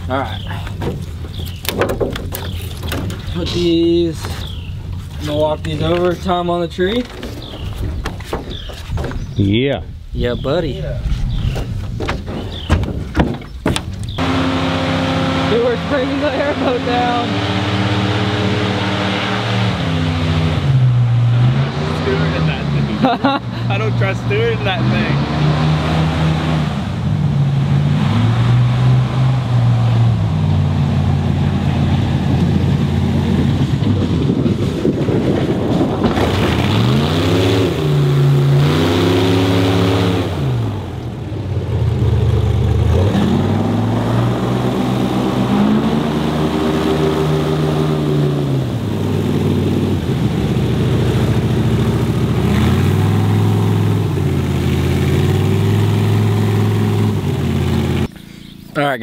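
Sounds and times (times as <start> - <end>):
airboat engine revving: 14.1 - 58.8.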